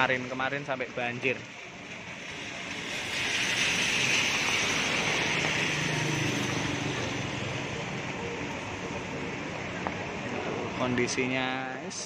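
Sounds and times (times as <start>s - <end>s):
heavy rain on road and roof: 0.0s - 11.9s.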